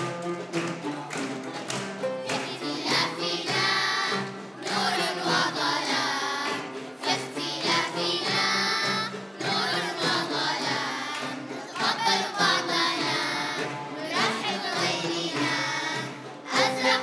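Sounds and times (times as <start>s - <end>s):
children's choir singing: 0.0s - 17.0s.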